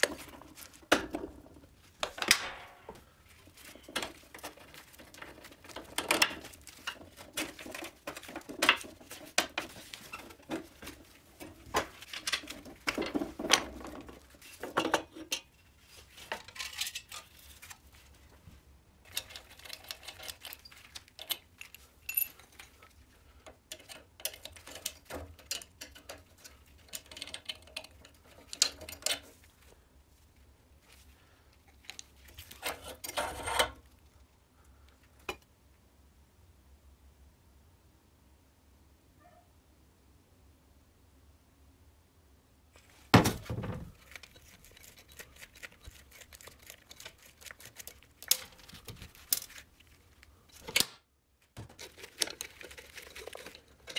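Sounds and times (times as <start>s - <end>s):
metal parts clinking and knocking: 16.3s - 17.4s, 19.1s - 29.3s, 51.6s - 53.9s.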